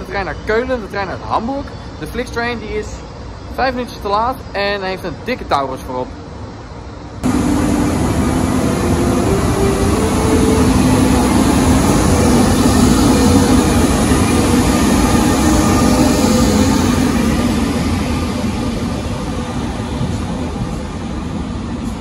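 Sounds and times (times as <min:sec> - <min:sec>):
low rumble of train wheels: 0:00.0 - 0:22.0
electric locomotive traction hum: 0:06.6 - 0:22.0.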